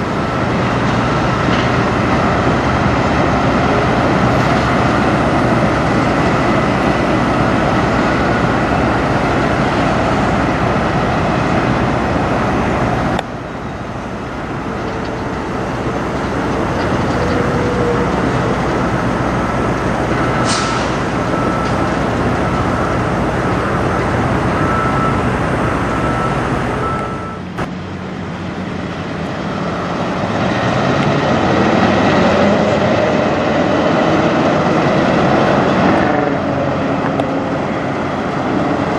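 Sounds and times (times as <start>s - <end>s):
diesel truck engines running: 0.0s - 38.9s
short air hiss: 20.4s - 21.0s.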